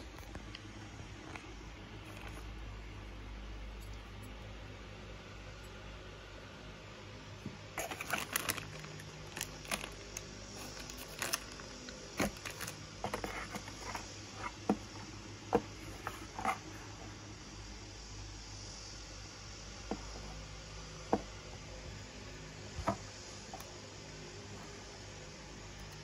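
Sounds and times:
plastic bag crinkling: 0:07.8 - 0:14.6.

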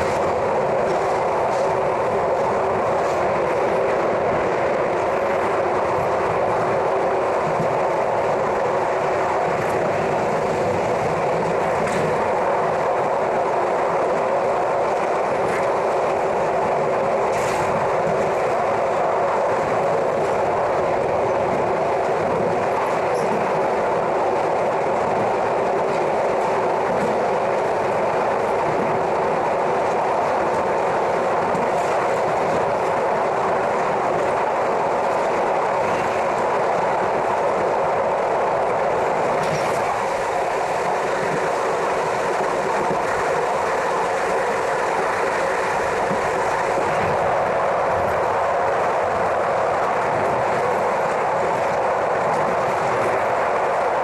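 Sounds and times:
train wheels rolling on rail: 0:00.0 - 0:54.0
faint rail joint clicks: 0:21.4 - 0:23.8.

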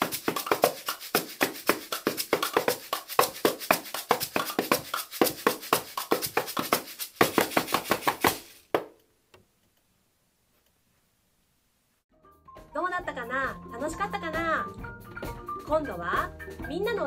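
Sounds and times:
taps and knocks on household objects: 0:00.0 - 0:09.0.

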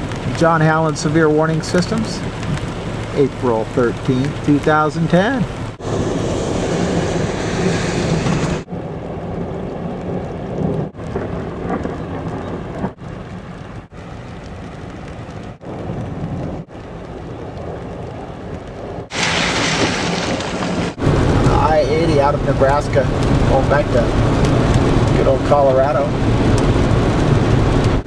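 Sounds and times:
steady rain: 0:00.0 - 0:28.0
rumbling thunder: 0:05.7 - 0:28.0.

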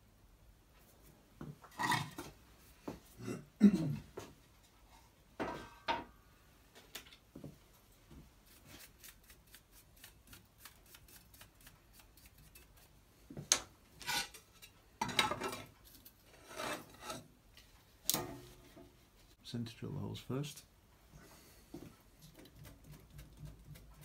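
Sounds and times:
metal sheet scraping on metal table: 0:16.3 - 0:17.3.

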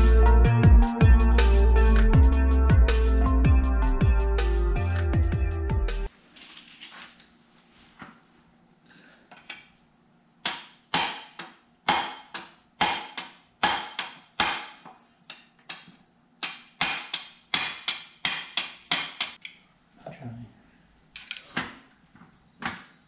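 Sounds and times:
hammer striking steel punch: 0:10.4 - 0:14.8, 0:15.7 - 0:19.4.

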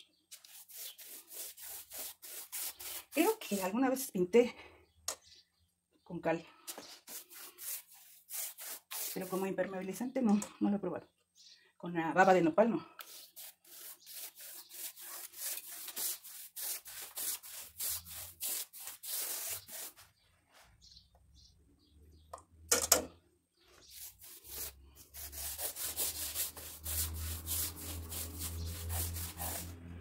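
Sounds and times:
paintbrush scrubbing plaster wall: 0:00.0 - 0:04.0, 0:06.7 - 0:09.6, 0:13.0 - 0:20.7, 0:23.6 - 0:30.0.

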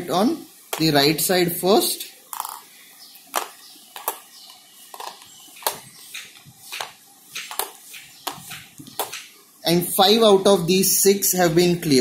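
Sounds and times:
marbles clicking on plastic board: 0:02.3 - 0:02.6.

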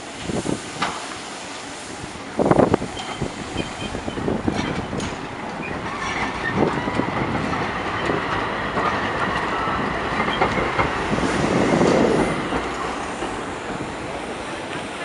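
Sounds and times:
tram rolling past: 0:00.0 - 0:15.0
wheels clicking over rail joints: 0:02.9 - 0:15.0.

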